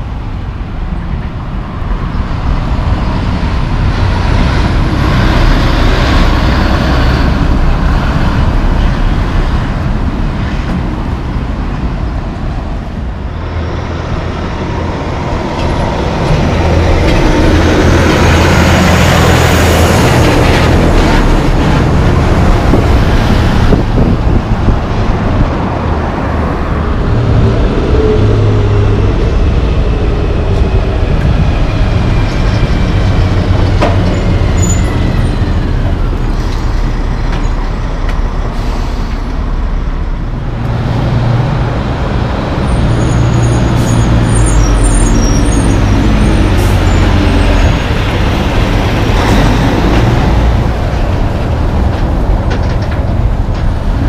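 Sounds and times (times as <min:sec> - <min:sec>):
diesel trucks passing: 0:00.0 - 0:54.0
tyres on road: 0:00.0 - 0:54.0.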